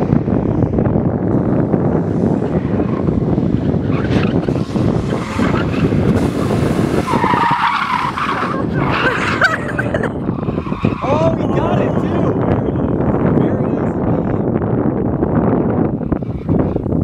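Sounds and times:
car engine driven hard: 0.0s - 17.0s
wind rumble on microphone: 0.0s - 17.0s
tyres squealing: 6.9s - 13.0s.

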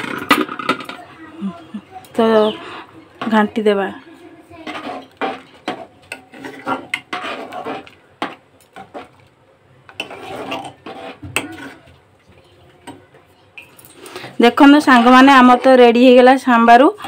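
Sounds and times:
metal ladle scraping pot: 4.5s - 9.3s, 9.9s - 11.9s, 13.8s - 15.9s.

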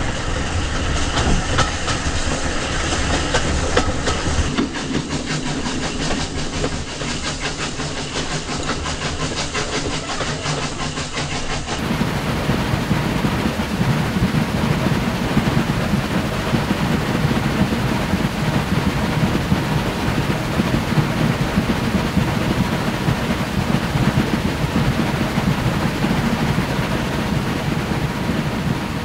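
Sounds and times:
train coaches rumbling on track: 0.0s - 29.0s
wind buffeting microphone: 11.8s - 29.0s.

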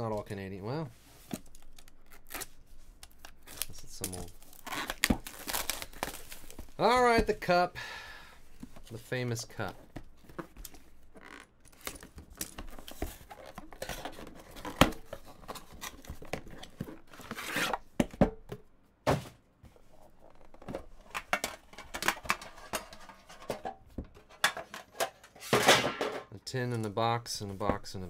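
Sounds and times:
cardboard box scraping and tearing: 17.2s - 17.8s.

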